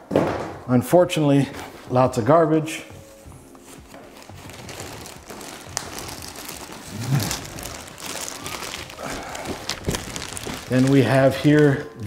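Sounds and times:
plastic bag rustling and crinkling: 1.4 - 12.0.

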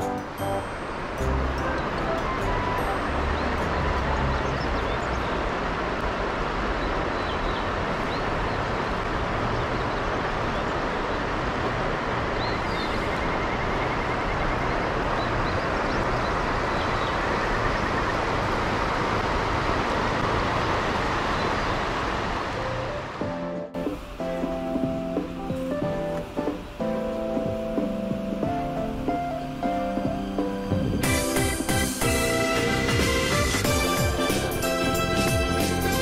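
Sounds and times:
river water flowing over stones: 0.0 - 13.4.

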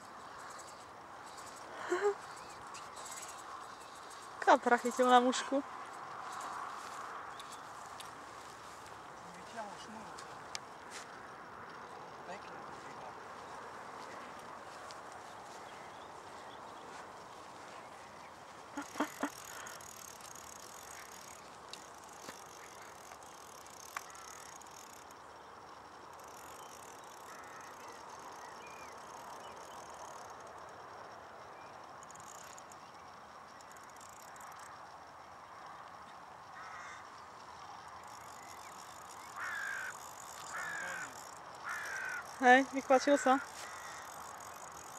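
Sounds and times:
faint outdoor hiss: 0.0 - 44.9
fishing reel drag buzzing: 0.0 - 44.9
sharp clicks: 18.8 - 25.2.

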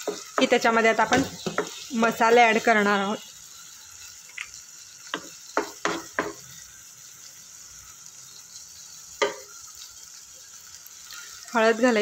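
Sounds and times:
spatula stirring and scraping: 0.0 - 7.0
onion and tomato sizzling in oil: 0.0 - 12.0.

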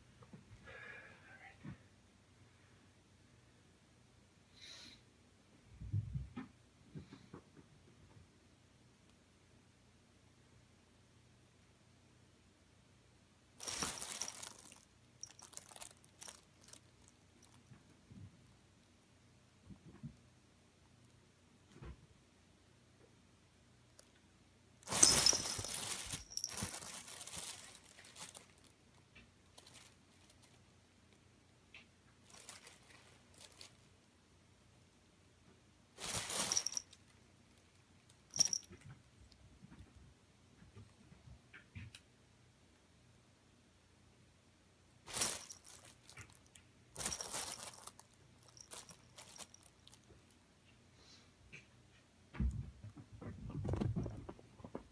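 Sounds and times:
fabric rustling and crinkling: 13.6 - 17.6, 24.8 - 28.7, 29.5 - 30.6, 32.2 - 33.9, 36.0 - 37.1, 45.1 - 50.1.

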